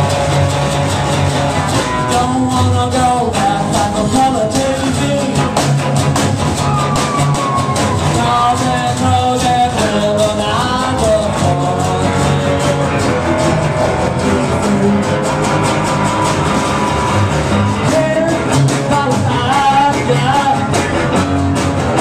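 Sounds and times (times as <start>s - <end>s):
acoustic guitar strumming: 0.0s - 22.0s
second guitar: 0.0s - 22.0s
man singing: 1.7s - 5.8s, 7.8s - 15.7s, 17.5s - 21.3s.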